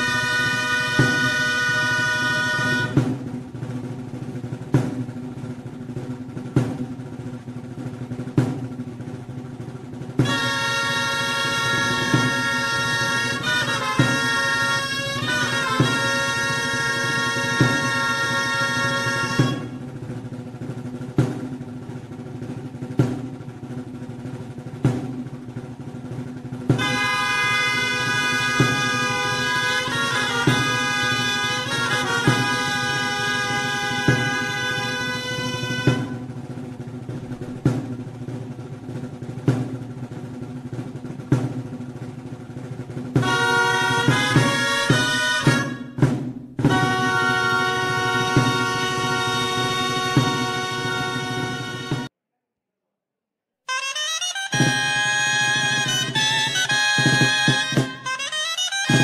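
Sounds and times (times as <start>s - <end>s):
bright busy melody: 0.0s - 3.1s, 10.2s - 19.8s, 26.8s - 36.2s, 43.2s - 46.0s, 46.6s - 52.1s, 53.7s - 59.0s
reed pipes playing a held chord: 0.0s - 3.4s, 10.2s - 20.7s, 26.4s - 37.1s, 43.2s - 52.1s, 53.7s - 59.0s
drum beating slowly: 0.0s - 52.1s, 53.7s - 59.0s.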